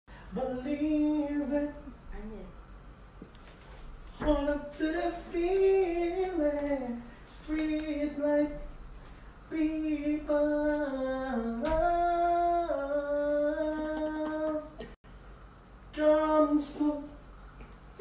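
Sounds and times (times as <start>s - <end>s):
person humming and singing: 11.6s - 14.9s.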